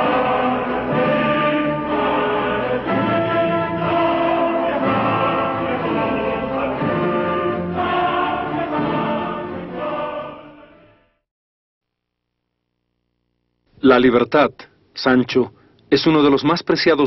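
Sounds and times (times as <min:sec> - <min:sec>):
choir singing sustained chords: 0:00.0 - 0:11.2.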